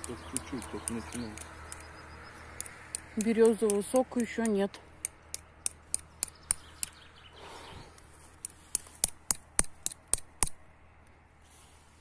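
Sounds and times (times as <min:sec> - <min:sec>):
sharp high-pitched ticks: 0:00.0 - 0:07.0, 0:08.0 - 0:10.6
soft rustle: 0:11.3 - 0:12.0.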